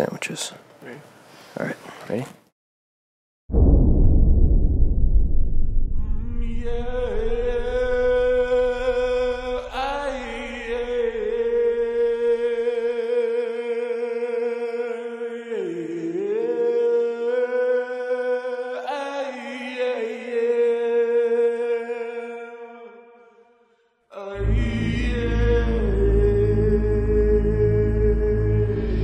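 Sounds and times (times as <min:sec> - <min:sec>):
deep rumble: 0:03.5 - 0:12.2, 0:24.4 - 0:29.0
chanting voice with long notes: 0:05.9 - 0:29.0.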